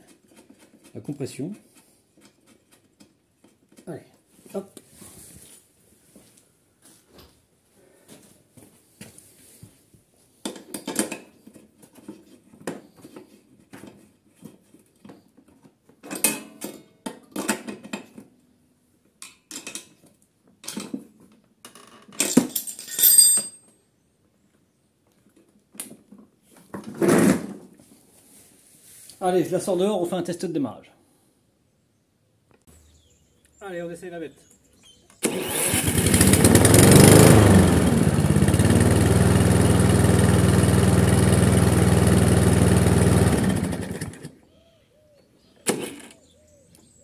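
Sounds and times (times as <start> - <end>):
clicks and rattles of parts handled: 10.4 - 18.4, 19.1 - 23.5.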